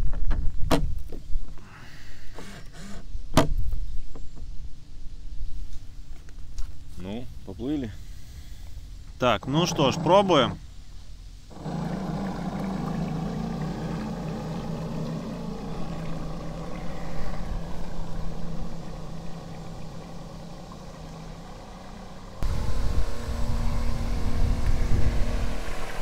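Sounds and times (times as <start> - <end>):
electric boat motor humming: 9.3 - 10.7, 11.4 - 26.0
low rumble: 10.6 - 26.0.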